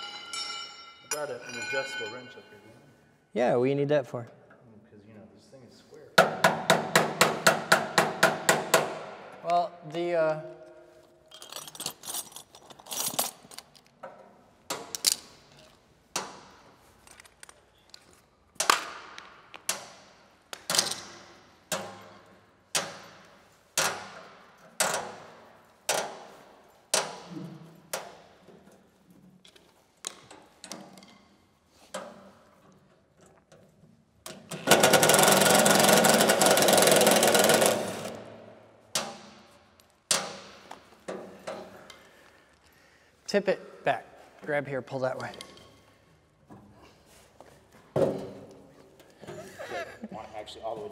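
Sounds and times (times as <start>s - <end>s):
metal striking metal: 0.0s - 2.7s
impact driver rattling: 34.4s - 38.2s.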